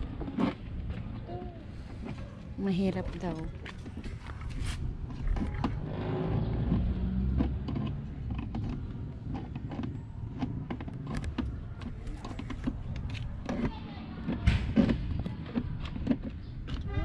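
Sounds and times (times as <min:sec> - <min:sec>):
plastic clicks and creaks: 0:00.0 - 0:02.3, 0:03.0 - 0:17.0.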